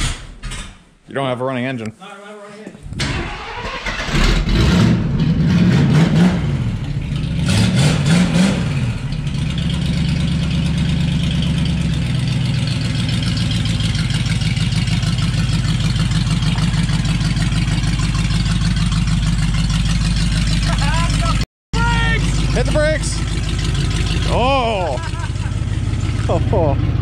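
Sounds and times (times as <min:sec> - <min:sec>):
car engine revving and idling: 0:03.4 - 0:27.0.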